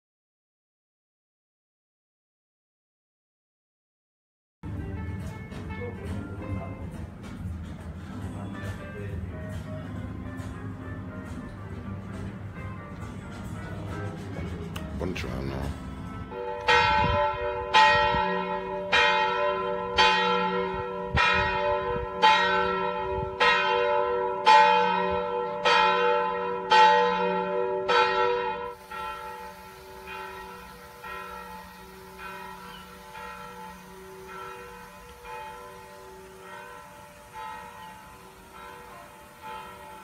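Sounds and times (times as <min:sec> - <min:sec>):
church bell tolling: 0:15.0 - 0:40.0.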